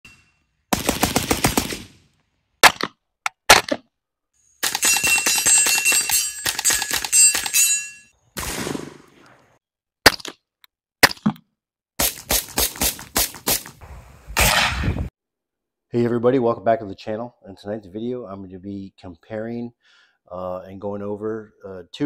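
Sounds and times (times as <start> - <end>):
suppressed pistol shot: 8.4 - 9.1.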